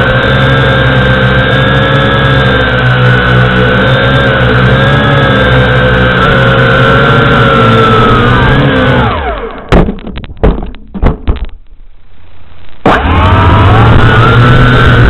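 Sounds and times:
drone motors whining: 0:00.0 - 0:10.0, 0:12.1 - 0:15.0
sharp knocks on ground: 0:09.6 - 0:11.6.

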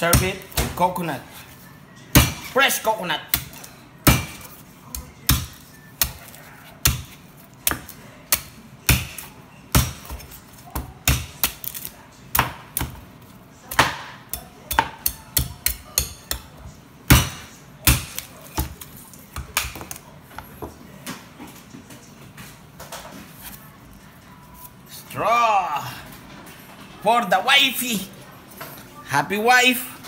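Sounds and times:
knife chopping coconut husk: 0:00.0 - 0:01.1, 0:02.1 - 0:02.6, 0:03.3 - 0:13.0, 0:13.6 - 0:16.5, 0:17.1 - 0:20.0.

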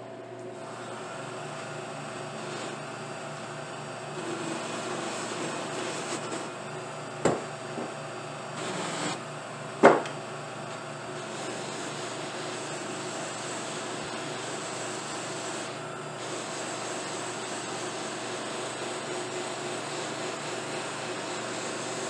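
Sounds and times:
buffing wheel motor hum: 0:00.6 - 0:22.0
sharp knocks: 0:09.8 - 0:10.2.

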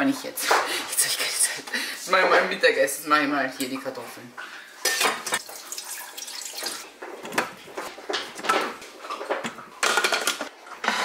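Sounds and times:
water pouring into a bowl: 0:05.4 - 0:06.9
bowl and plastic lid clattering: 0:07.1 - 0:11.0.

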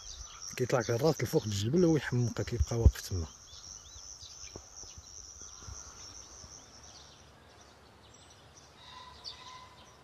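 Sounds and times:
faint bird chirps: 0:00.0 - 0:10.0
high insect buzz: 0:02.3 - 0:07.3.

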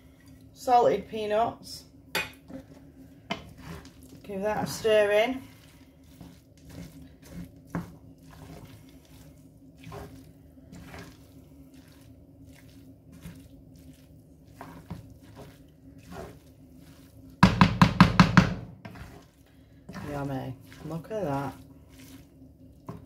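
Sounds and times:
faint steady hum: 0:00.0 - 0:23.0
spatula scraping frying pan: 0:03.3 - 0:11.8, 0:12.6 - 0:17.2, 0:18.8 - 0:22.3.

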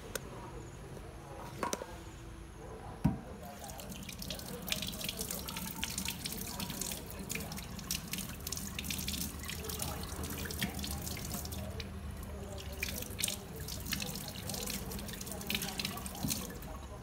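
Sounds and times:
splashing and dripping: 0:03.4 - 0:16.8
tap water running into sink: 0:03.5 - 0:16.8.

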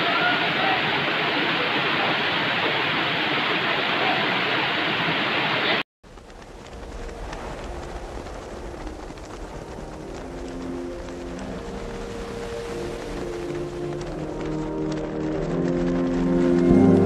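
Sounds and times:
river water rushing over rocks: 0:00.0 - 0:05.8
wind rumble on microphone: 0:06.1 - 0:17.0.

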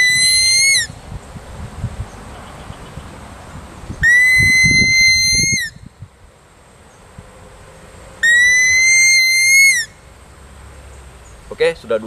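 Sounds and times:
deer call whistle: 0:00.0 - 0:00.9, 0:04.0 - 0:05.8, 0:08.2 - 0:10.0.

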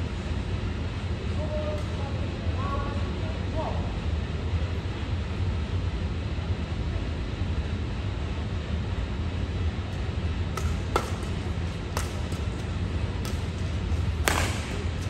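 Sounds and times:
low hum of hall: 0:00.0 - 0:15.0
racket striking shuttlecock: 0:10.5 - 0:15.0.

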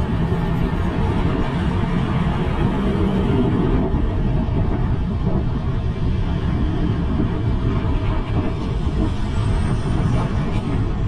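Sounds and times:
traffic and road noise: 0:00.0 - 0:11.0
wind rumble on microphone: 0:00.0 - 0:11.0.

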